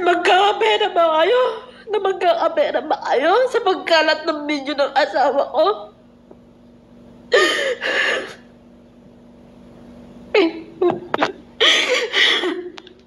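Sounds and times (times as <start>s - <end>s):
woman sobbing: 7.3s - 8.4s, 10.3s - 12.8s
catches of breath: 7.4s - 8.5s.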